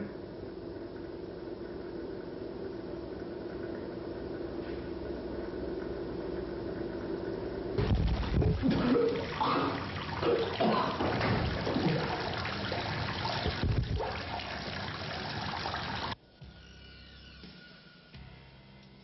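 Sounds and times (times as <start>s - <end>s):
tap water running into basin: 7.8s - 16.2s.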